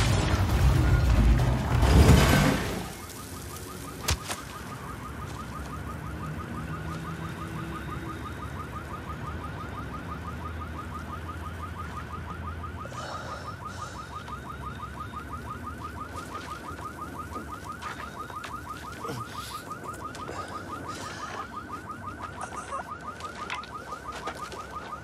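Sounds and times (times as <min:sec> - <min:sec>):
explosion: 0:00.0 - 0:03.0
car alarm warbling: 0:00.0 - 0:25.0.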